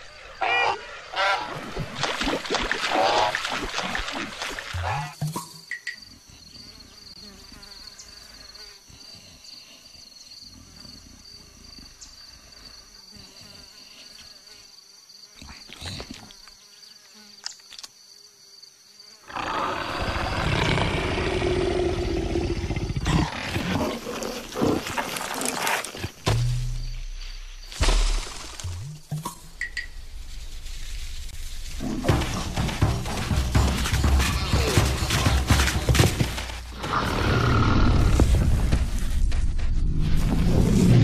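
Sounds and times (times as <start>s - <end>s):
insect drone: 0.0s - 41.0s
big cat growl: 19.3s - 26.0s, 36.7s - 38.5s.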